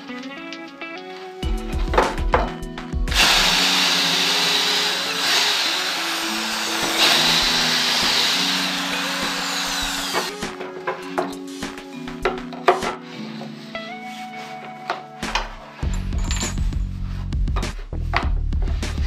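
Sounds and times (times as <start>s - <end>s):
electric drill boring through wood: 3.1s - 10.5s.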